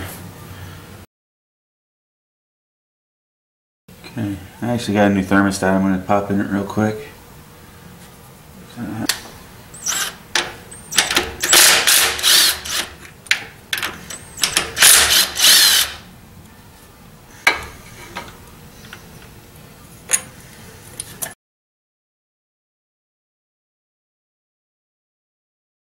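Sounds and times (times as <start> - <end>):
socket tool whirring and ratcheting: 9.8 - 16.0.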